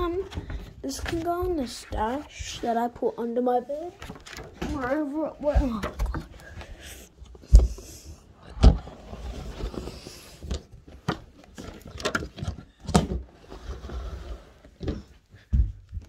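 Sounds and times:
knocks and thumps of objects: 7.4s - 9.0s, 14.8s - 16.0s.

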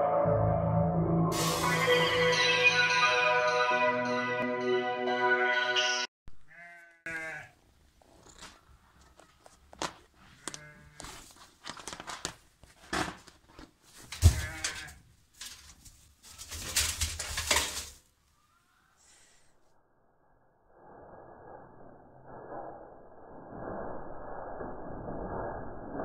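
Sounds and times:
animals scrabbling inside metal barrel: 11.0s - 18.1s.

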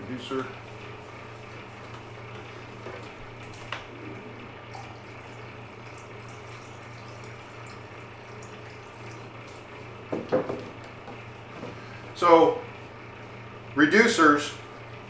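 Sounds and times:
constant low hum: 0.0s - 15.0s
liquid trickling into a cup: 4.6s - 10.0s.

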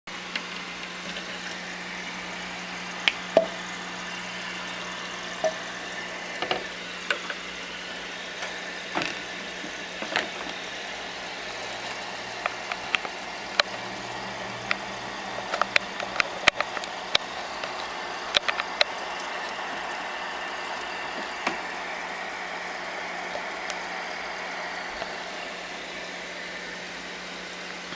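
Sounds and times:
sharp clicks and knocks: 15.4s - 19.0s.

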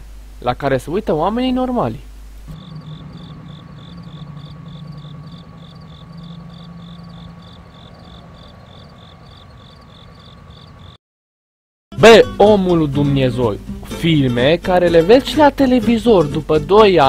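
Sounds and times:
low steady hum: 0.0s - 11.0s
cricket chirping: 2.5s - 11.0s.

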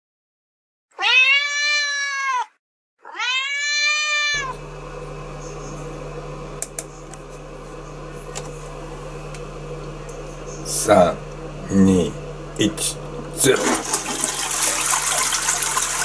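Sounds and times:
cat meowing: 0.9s - 4.6s
steady low hum: 4.4s - 16.0s.

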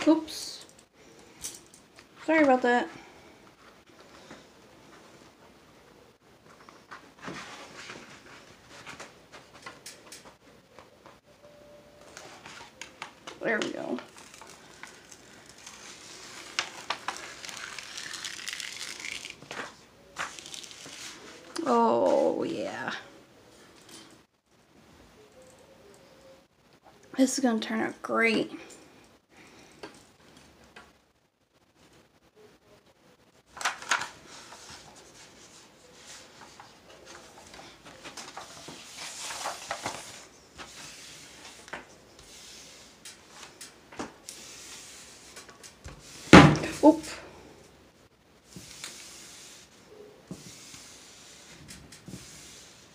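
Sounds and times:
paper sheet rustling and crinkling: 6.5s - 9.8s, 12.1s - 21.6s, 33.5s - 47.0s
canvas sheet rustling: 13.6s - 22.3s.

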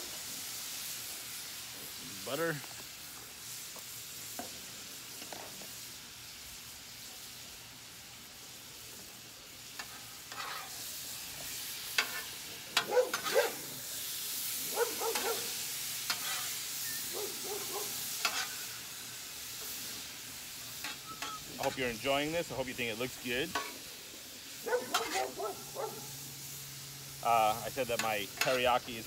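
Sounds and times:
meat sizzling on a griddle: 0.0s - 29.0s
metal spatulas scraping griddle: 9.8s - 10.9s, 11.9s - 13.7s, 15.0s - 17.1s, 18.1s - 18.7s, 20.8s - 22.0s, 24.7s - 25.4s, 27.9s - 28.8s.

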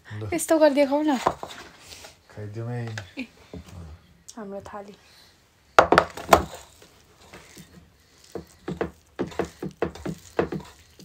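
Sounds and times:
fingers tapping and scraping plates: 7.3s - 11.0s.

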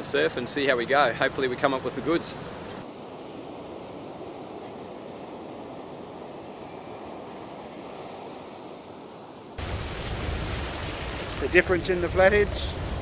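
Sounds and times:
surf washing onto beach: 2.8s - 13.0s.

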